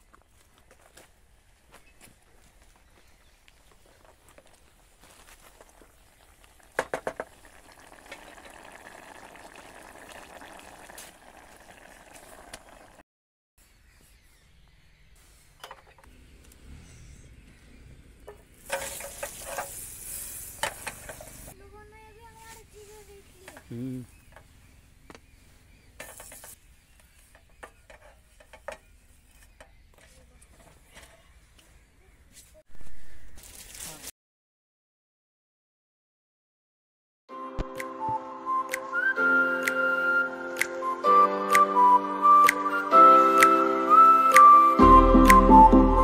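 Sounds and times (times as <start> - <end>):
thick mash bubbling and sizzling: 3.9 - 13.0, 18.5 - 21.6
wooden spatula scraping pan: 18.6 - 19.8, 26.0 - 26.6.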